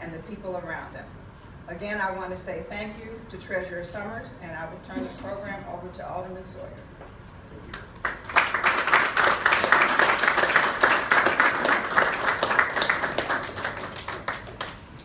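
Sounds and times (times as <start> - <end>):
crowd applauding: 7.7 - 14.8.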